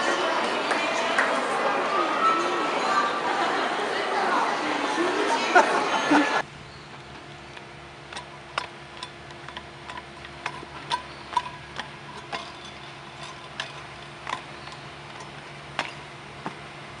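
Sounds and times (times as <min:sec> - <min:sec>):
shoes tapping on metal posts: 0:06.9 - 0:17.0.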